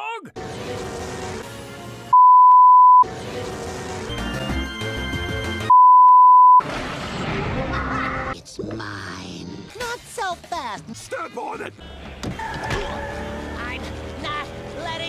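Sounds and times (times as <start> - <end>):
test-tone beeps: 2.2 - 3.0, 4.6 - 6.6.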